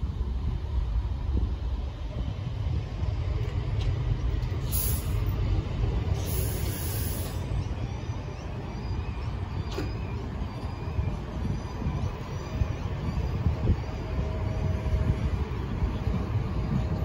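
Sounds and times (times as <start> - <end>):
tram rumbling past: 0.0 - 17.0
short high hisses: 4.6 - 5.2, 6.2 - 7.4.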